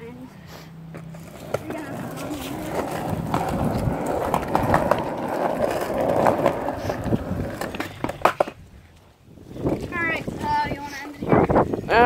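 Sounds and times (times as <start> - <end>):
skateboard wheels rumbling on concrete: 0.9 - 8.8.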